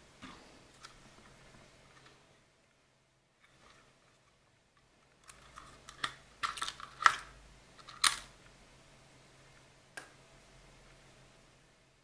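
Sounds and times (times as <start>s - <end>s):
plastic clicks and scrapes: 5.2s - 8.3s.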